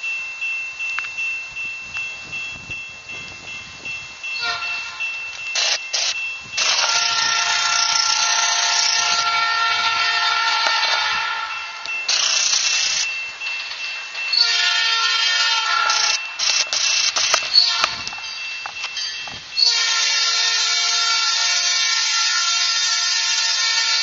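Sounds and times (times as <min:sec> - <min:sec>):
locomotive air horn blasts: 0:04.4 - 0:05.0, 0:06.6 - 0:11.8, 0:14.4 - 0:16.2, 0:17.5 - 0:18.1, 0:19.6 - 0:24.0.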